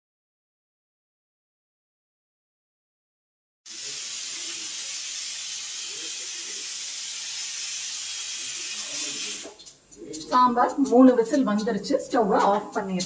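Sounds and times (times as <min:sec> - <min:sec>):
pressure cooker whistling: 0:03.7 - 0:09.6.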